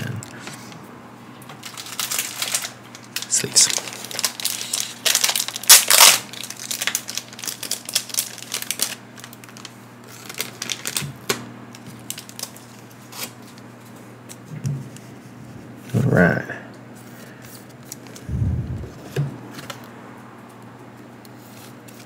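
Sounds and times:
plastic wrapping crackling: 0:01.6 - 0:13.6.

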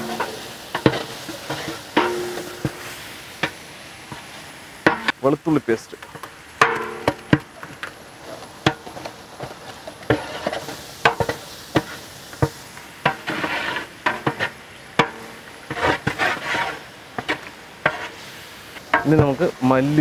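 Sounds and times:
onions sizzling in oil: 0:00.0 - 0:20.0
metal paddle knocking in pot: 0:02.0 - 0:02.9, 0:06.6 - 0:07.4.

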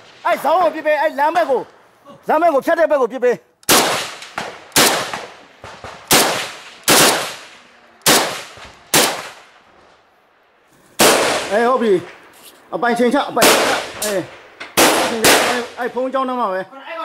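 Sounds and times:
gunshots with echo: 0:03.7 - 0:09.5, 0:11.0 - 0:12.1, 0:13.4 - 0:16.0.

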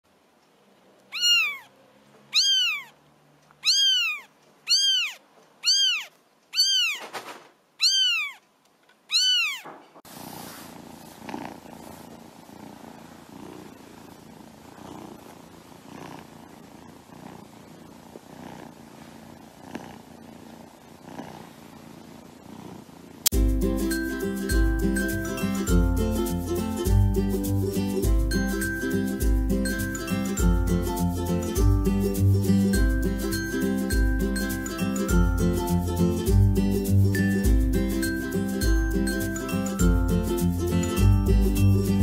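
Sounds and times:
kitten purring: 0:01.1 - 0:01.7, 0:02.3 - 0:02.9, 0:03.6 - 0:07.0, 0:10.3 - 0:23.4
kittens mewing: 0:01.1 - 0:03.0, 0:03.6 - 0:07.1, 0:07.8 - 0:08.4, 0:09.1 - 0:09.8.

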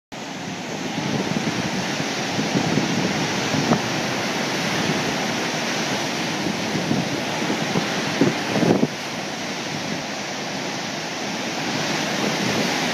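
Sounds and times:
water rushing roar: 0:00.1 - 0:12.9.

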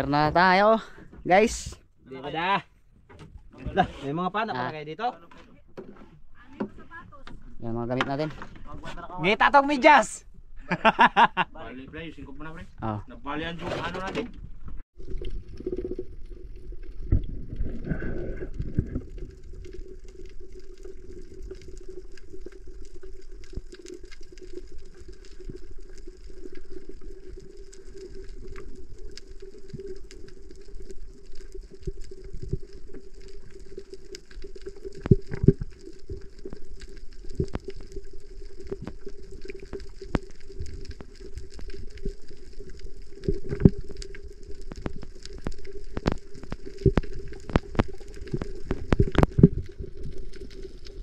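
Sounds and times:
small clicks and crackles: 0:13.6 - 0:51.0.

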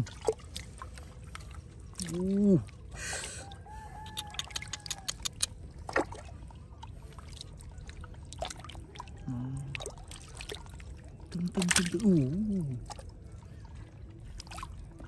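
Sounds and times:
water splashing in a basket: 0:00.0 - 0:15.0.

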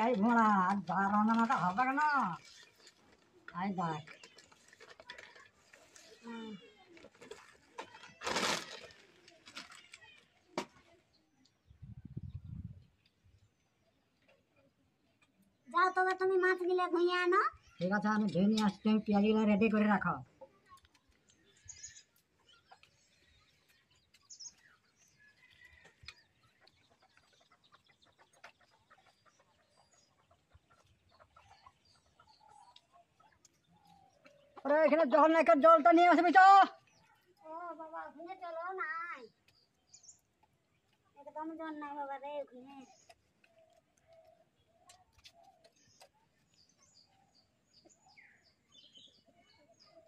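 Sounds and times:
small birds chirping: 0:00.0 - 0:50.0
clucking calls: 0:25.5 - 0:35.3.

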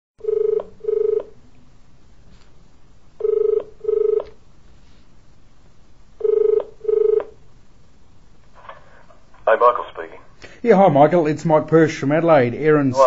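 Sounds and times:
telephone ringback tone: 0:00.2 - 0:01.4, 0:03.2 - 0:04.4, 0:06.2 - 0:07.4
faint line hiss: 0:01.1 - 0:13.0.

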